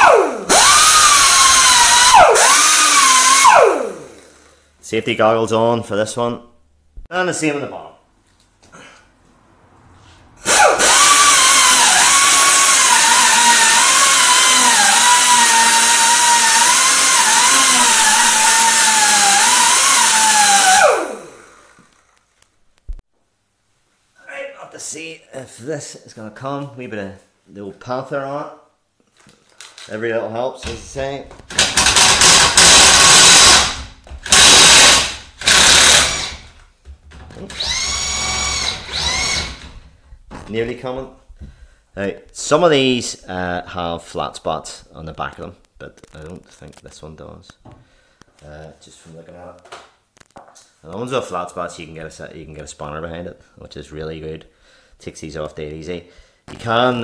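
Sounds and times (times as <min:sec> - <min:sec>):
air wire brush tool whining: 0:00.0 - 0:04.6, 0:10.4 - 0:22.1, 0:31.5 - 0:36.6, 0:37.4 - 0:39.8
impact wrench hammering: 0:31.5 - 0:36.6.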